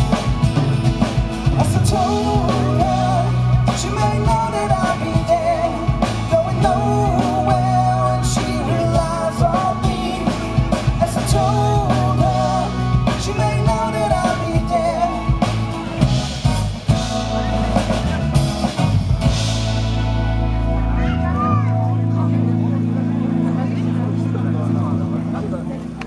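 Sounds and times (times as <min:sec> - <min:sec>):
drum kit: 0:00.0 - 0:23.1
acoustic guitar: 0:00.0 - 0:25.9
electric bass: 0:00.0 - 0:26.0
keyboard: 0:00.0 - 0:26.0
person singing: 0:01.4 - 0:15.7.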